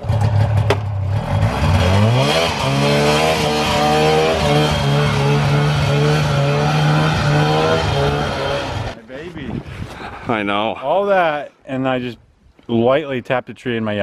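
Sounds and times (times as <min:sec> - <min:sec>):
snowmobile engine revving: 0:00.0 - 0:09.0.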